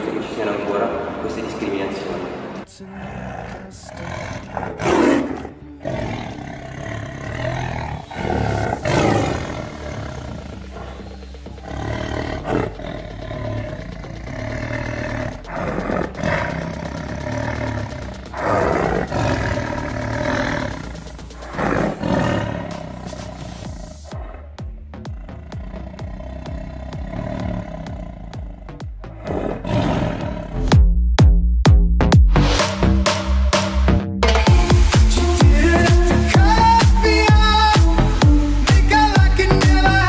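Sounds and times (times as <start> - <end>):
dinosaur roars and growls: 2.9 - 30.7.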